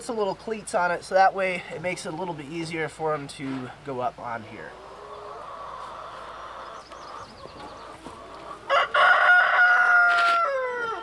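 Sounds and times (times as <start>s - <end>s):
rooster crowing: 8.6s - 11.0s.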